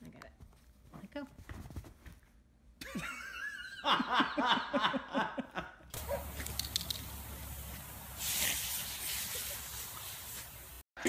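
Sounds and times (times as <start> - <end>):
lawn sprinkler water jet hissing: 6.0 - 10.8.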